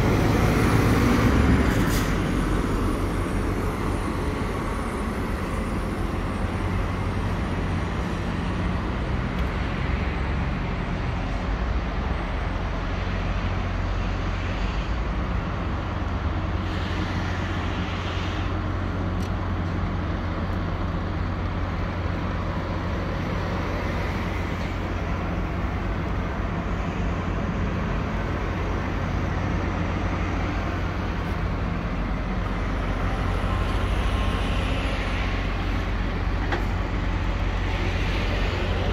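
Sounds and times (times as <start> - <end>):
truck diesel engine idling: 18.6 - 38.9.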